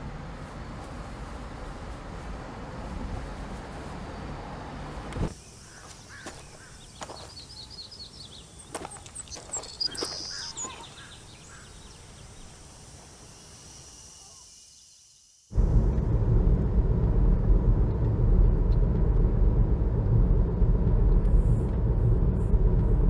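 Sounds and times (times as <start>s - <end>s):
small birds chirping: 5.3s - 12.7s
car cabin rumble: 15.5s - 23.0s.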